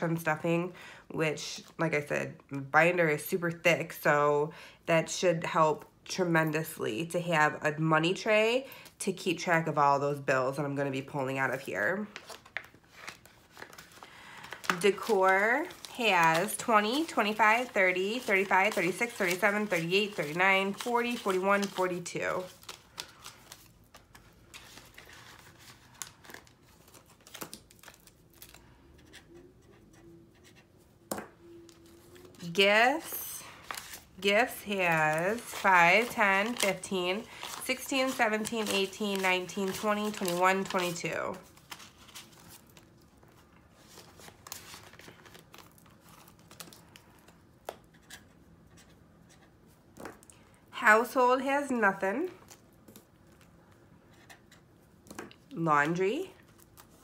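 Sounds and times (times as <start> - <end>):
paper bills rustling: 11.5 - 30.6, 31.7 - 50.2
plastic pouches crinkling: 12.2 - 28.7, 31.7 - 47.4.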